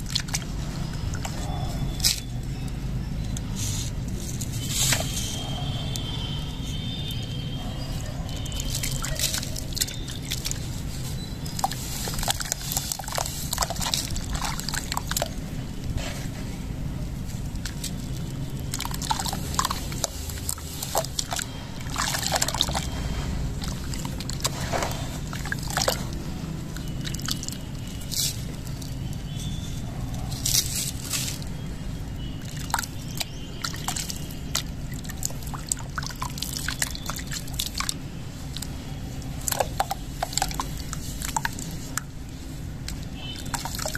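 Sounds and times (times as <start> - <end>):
water dripping: 0.0 - 2.6, 8.0 - 15.9, 17.4 - 29.8, 31.3 - 43.9
hands sloshing muddy water: 8.5 - 15.4, 17.5 - 26.2, 32.2 - 42.1, 42.8 - 43.9.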